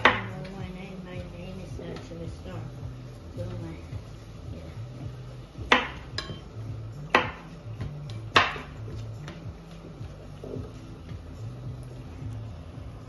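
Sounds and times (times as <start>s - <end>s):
knife chopping on wooden board: 5.6s - 6.4s, 7.1s - 7.5s, 8.3s - 9.4s.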